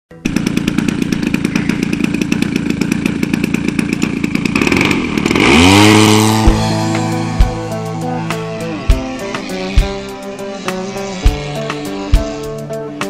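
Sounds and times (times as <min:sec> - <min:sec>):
model plane engine idling: 0:00.1 - 0:13.0
music with held chords: 0:05.5 - 0:13.0.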